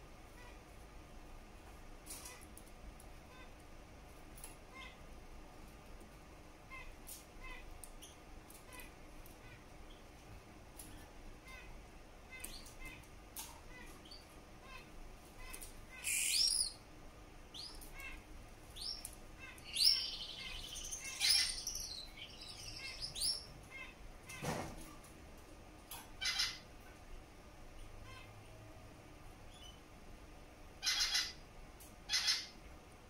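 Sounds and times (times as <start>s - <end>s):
finch singing high chirps: 15.4s - 16.8s, 17.5s - 23.9s.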